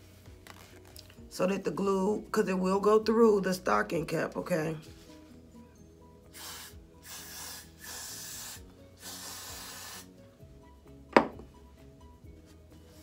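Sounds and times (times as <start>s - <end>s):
background music: 0.0s - 13.0s
hairspray can hissing: 6.3s - 10.1s.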